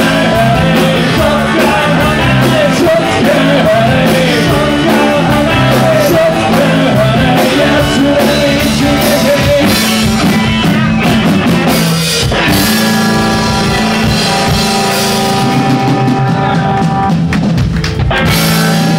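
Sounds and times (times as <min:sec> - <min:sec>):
person singing: 0:00.0 - 0:10.3
bass guitar: 0:00.0 - 0:18.9
drum kit: 0:00.0 - 0:18.9
electric guitars: 0:00.0 - 0:18.9.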